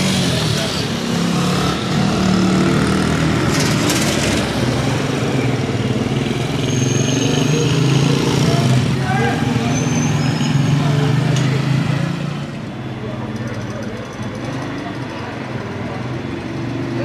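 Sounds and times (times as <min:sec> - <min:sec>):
small motorcycle riding off: 0:00.0 - 0:08.7.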